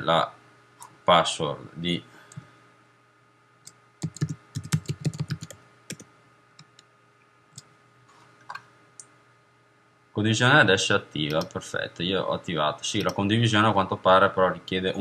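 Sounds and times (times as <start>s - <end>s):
typing on computer keyboard: 4.0s - 6.0s.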